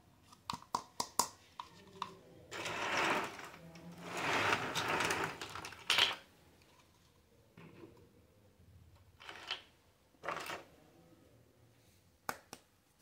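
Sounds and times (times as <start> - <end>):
plastic clicks and taps: 0.4 - 2.2
plastic scraping and rubbing: 2.5 - 7.1.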